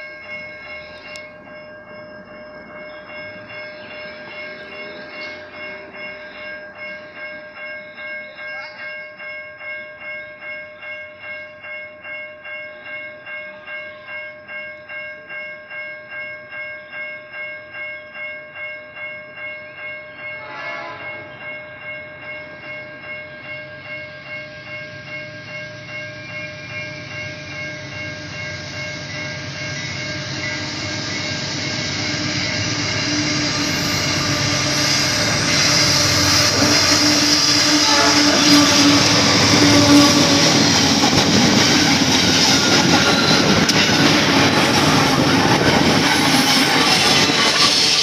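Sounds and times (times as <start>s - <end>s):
level-crossing alarm pulsing: 21.2s - 48.0s.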